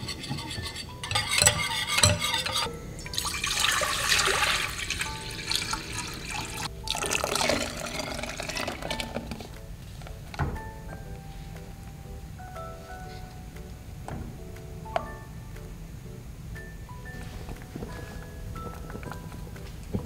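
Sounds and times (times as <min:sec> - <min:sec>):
water pouring and splashing: 0:03.0 - 0:09.5.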